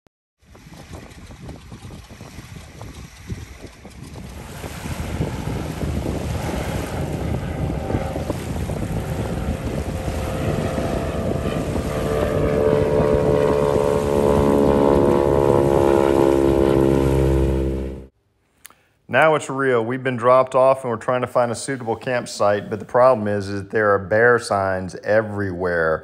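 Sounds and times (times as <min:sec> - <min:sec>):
propeller plane engine drone: 0:00.4 - 0:18.1
wind on microphone: 0:00.4 - 0:18.1.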